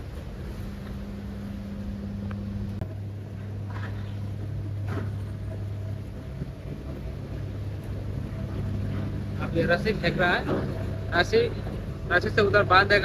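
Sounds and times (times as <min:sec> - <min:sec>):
ferry engines droning: 0:00.0 - 0:13.0.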